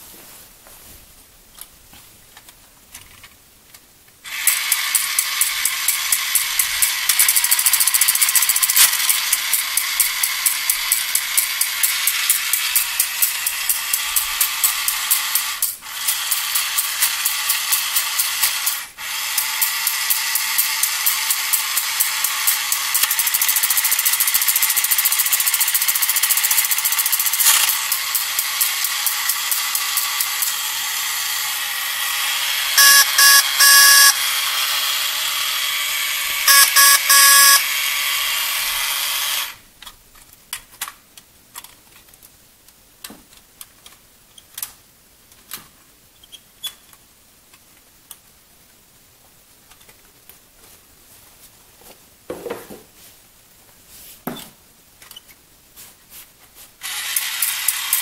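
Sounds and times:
toy motor and gears whirring: 4.2s - 39.6s, 56.8s - 58.0s
toy car horn toots: 32.8s - 34.2s, 36.5s - 37.7s.

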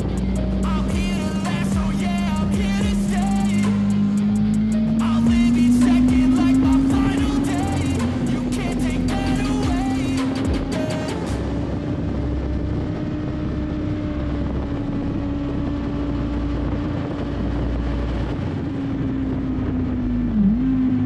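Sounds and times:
motorcycle engine high revs: 0.0s - 11.2s
wind rush: 0.0s - 21.0s.

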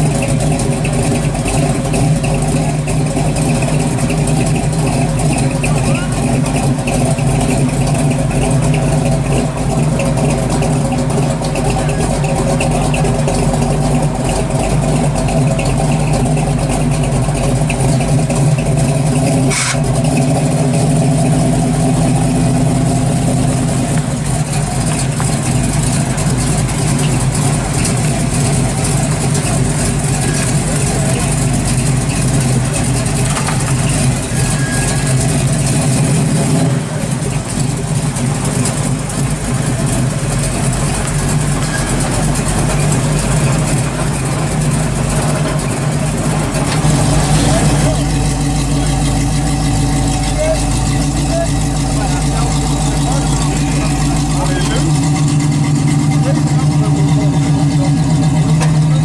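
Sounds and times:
truck engine idling: 0.0s - 59.0s
truck moving off slowly: 0.0s - 59.0s.

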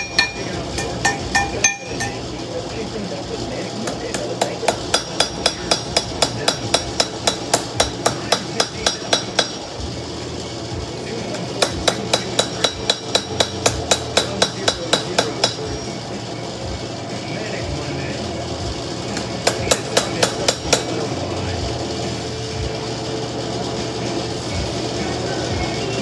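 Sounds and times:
hammer ringing on anvil: 0.0s - 2.3s, 3.9s - 9.6s, 11.3s - 15.8s.

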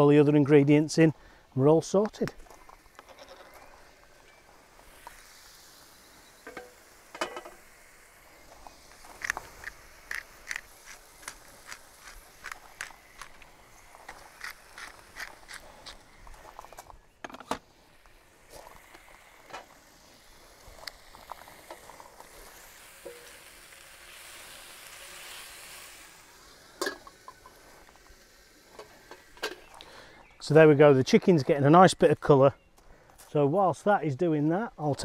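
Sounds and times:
chicken sizzling in a pan: 2.4s - 29.9s
pepper grinder clicks: 9.1s - 16.0s.

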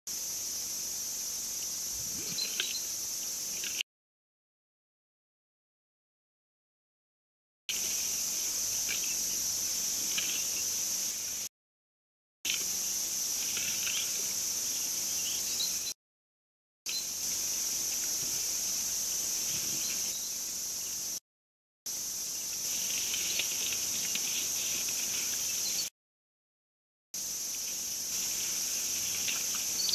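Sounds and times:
crickets chirping: 0.1s - 3.8s, 7.7s - 11.5s, 12.5s - 15.9s, 16.9s - 21.2s, 21.9s - 25.9s, 27.2s - 29.9s.

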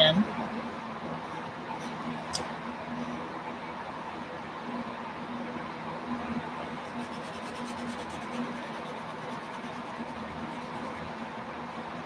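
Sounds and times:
low background hum: 0.0s - 12.0s
marker scratching on paper: 6.8s - 11.2s.

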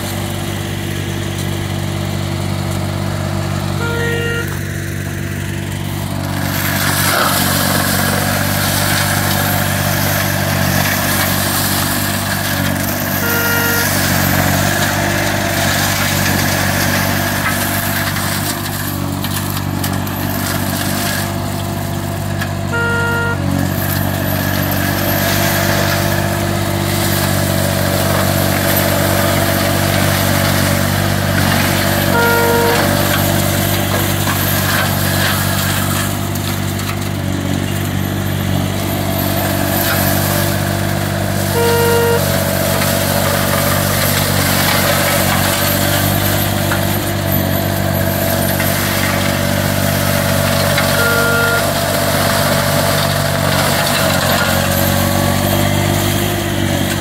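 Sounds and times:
mower engine running under load: 0.0s - 57.0s
short electronic beep: 3.8s - 4.9s, 13.1s - 14.4s, 22.7s - 23.6s, 32.1s - 33.3s, 41.5s - 42.6s, 50.8s - 51.9s.

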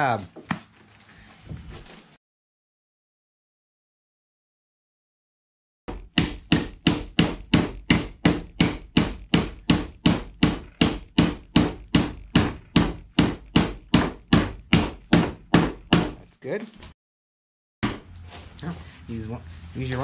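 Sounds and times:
hammer driving nails into wood: 5.9s - 16.2s.

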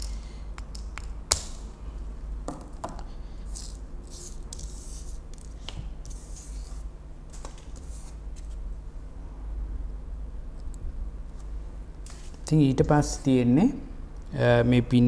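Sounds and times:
wires and connector clicking and rustling: 0.0s - 1.6s.

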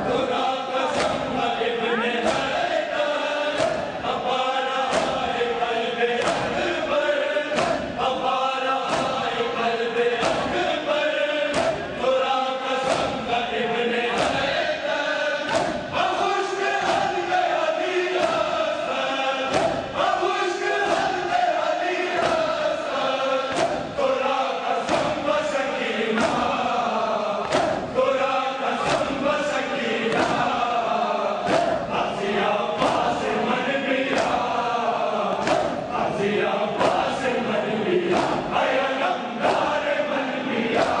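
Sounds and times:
men chanting in unison: 0.0s - 41.0s
hands slapping bare chests: 0.9s - 1.3s, 2.2s - 2.6s, 4.9s - 5.2s, 6.2s - 6.6s, 7.6s - 7.9s, 8.9s - 9.2s, 10.2s - 10.6s, 11.5s - 11.8s, 12.9s - 13.2s, 14.2s - 14.5s, 15.5s - 15.9s, 19.5s - 19.9s, 22.2s - 22.7s, 23.5s - 23.9s, 24.9s - 25.2s, 26.2s - 26.5s, 27.4s - 27.8s, 28.8s - 29.2s, 30.1s - 30.5s, 31.5s - 31.8s, 34.1s - 34.5s, 35.3s - 35.8s, 36.8s - 37.1s, 38.1s - 38.5s, 40.7s - 41.0s.

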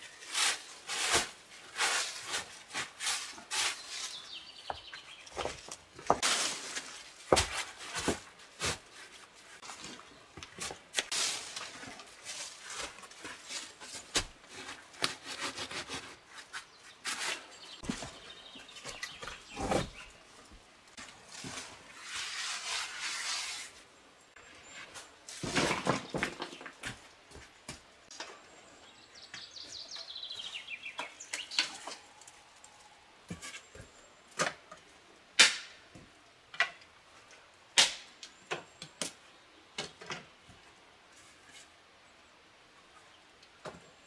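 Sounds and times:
dry leaves rustling and crunching: 6.2s - 8.8s, 11.0s - 15.8s.

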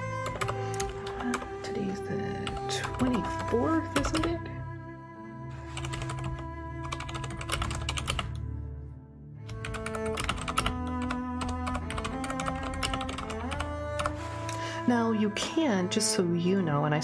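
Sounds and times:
soft background music: 0.0s - 17.0s
typing on a computer keyboard: 0.1s - 1.5s, 2.4s - 4.3s, 5.8s - 8.4s, 9.5s - 14.1s.

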